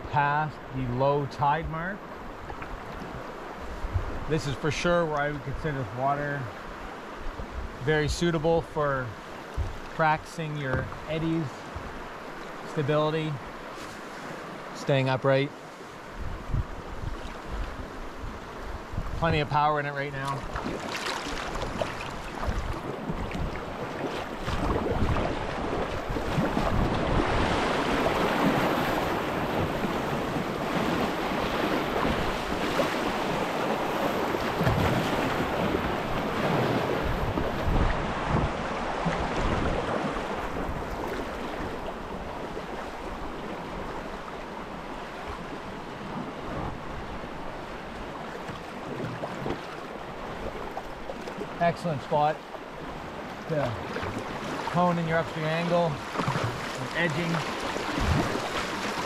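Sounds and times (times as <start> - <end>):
rushing whitewater: 0.0 - 16.3, 17.0 - 59.0
wind buffeting microphone: 2.5 - 4.3, 16.1 - 19.5, 20.4 - 44.1, 57.3 - 59.0.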